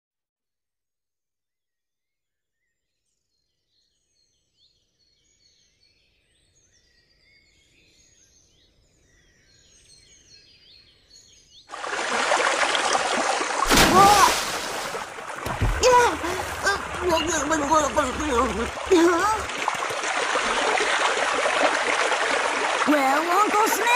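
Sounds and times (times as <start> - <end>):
rush of running water: 11.7 - 23.9
birds chirping: 13.7 - 21.2.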